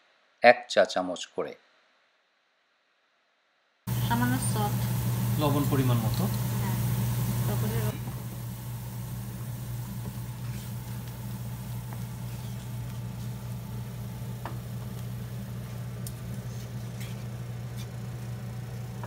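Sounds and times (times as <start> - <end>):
low mechanical hum: 3.9 - 19.0
spices sizzling in oil: 3.9 - 19.0.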